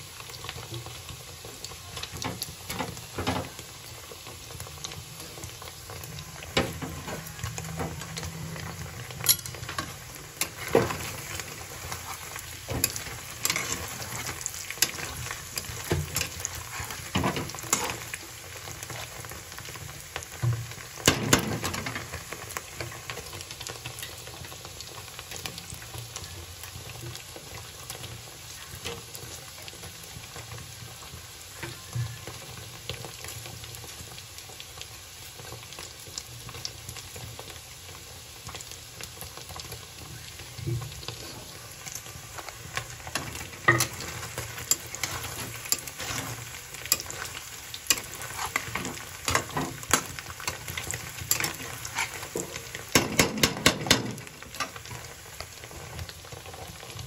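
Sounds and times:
food sizzling in oil: 0.0s - 57.0s
spatula scraping pan: 6.4s - 18.1s, 42.8s - 52.8s.

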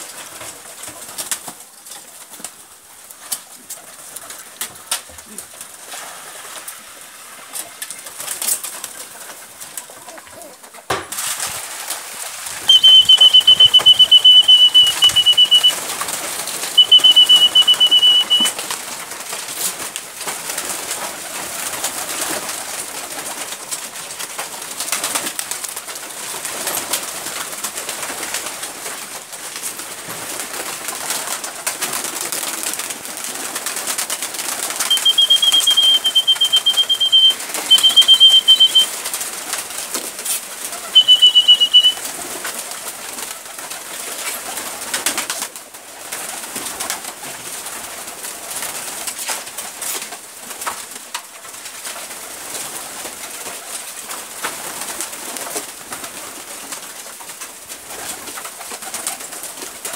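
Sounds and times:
wings flapping: 7.3s - 59.9s
pigeons cooing: 12.7s - 15.7s, 34.9s - 38.8s.

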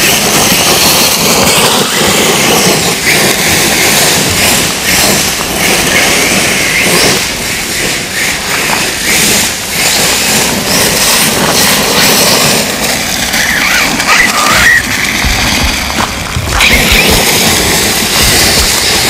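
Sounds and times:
electric motor whine: 0.0s - 19.0s
tyres crunching on gravel: 10.6s - 19.0s.

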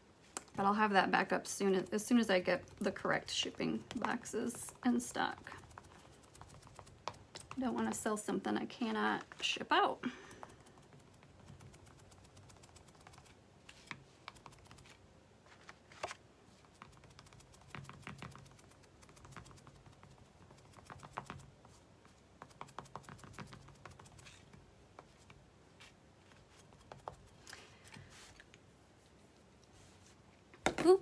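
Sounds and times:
sponge tapping paint: 22.4s - 24.2s.

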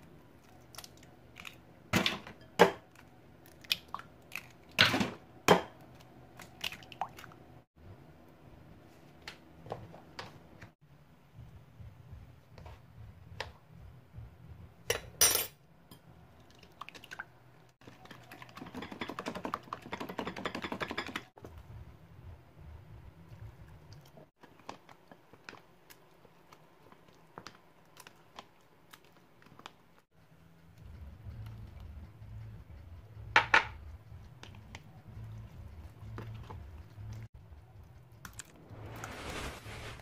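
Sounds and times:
eggs beaten in glass bowl: 17.8s - 21.3s, 30.7s - 38.0s.

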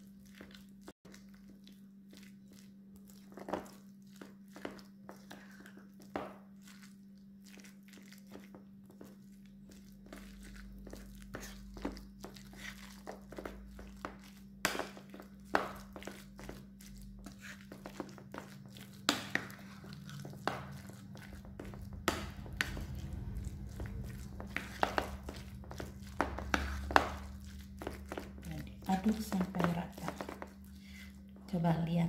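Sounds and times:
batter squelching: 0.0s - 32.0s
steady low hum: 15.4s - 32.0s.

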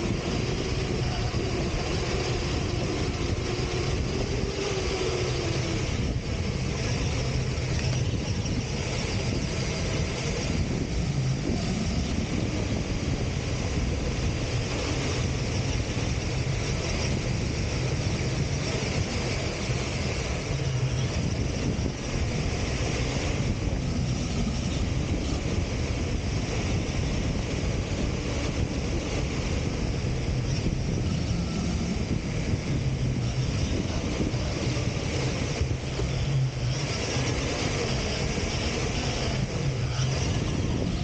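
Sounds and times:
wind rush on microphone: 0.0s - 41.0s.

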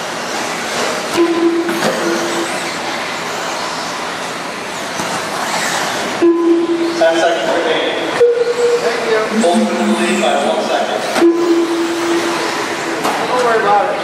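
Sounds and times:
short flat beeps: 9.3s - 12.3s.

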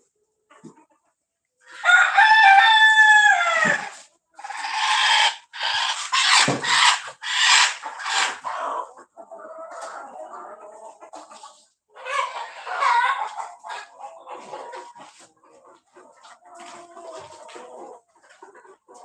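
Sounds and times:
rooster crowing: 1.8s - 3.9s.

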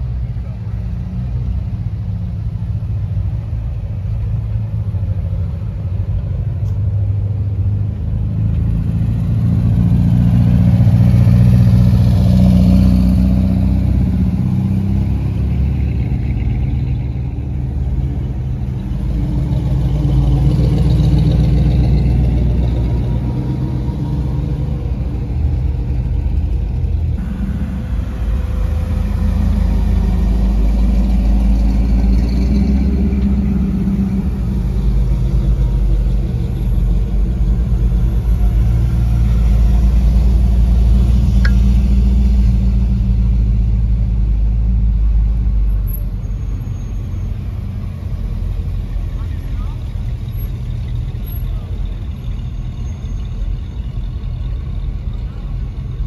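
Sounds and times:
cars driving past: 0.0s - 56.0s.

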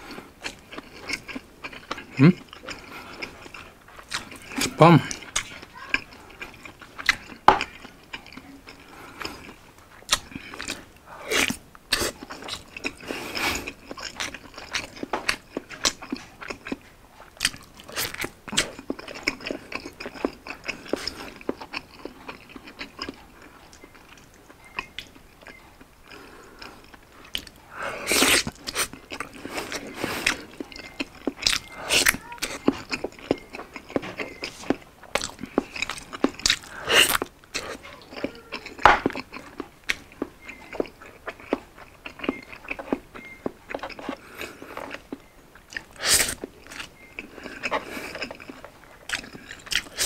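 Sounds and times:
person biting and chewing: 0.4s - 50.0s.

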